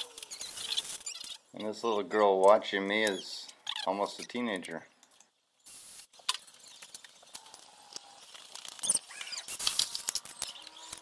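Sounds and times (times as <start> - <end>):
plastic sheet crackling and scraping: 0.0 - 1.4, 6.1 - 11.0.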